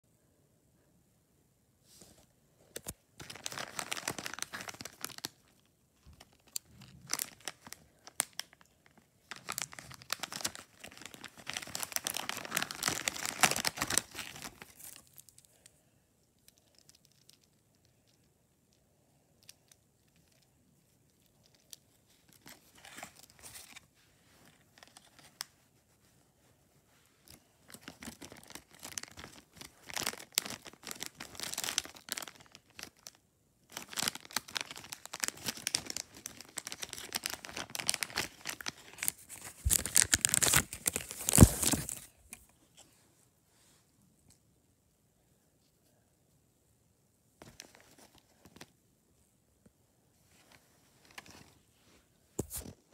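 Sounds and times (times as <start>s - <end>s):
foil packets tearing and crinkling: 3.2s - 5.4s, 9.2s - 15.2s, 27.7s - 42.1s.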